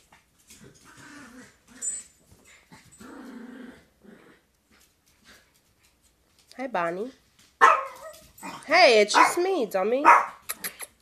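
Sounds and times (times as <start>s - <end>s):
puppies growling: 0.5s - 5.4s.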